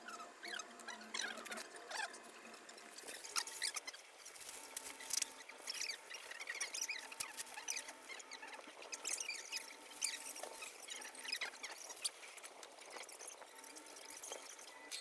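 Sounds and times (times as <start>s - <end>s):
baking paper crinkling: 1.3s - 14.7s.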